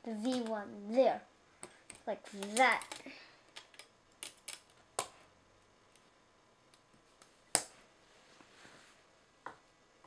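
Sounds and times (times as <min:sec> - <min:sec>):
plastic parts clicking: 0:01.6 - 0:05.1.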